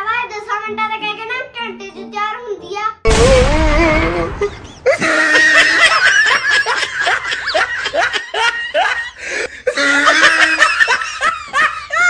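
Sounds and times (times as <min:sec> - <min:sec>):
bursts of laughter: 0:04.1 - 0:12.0.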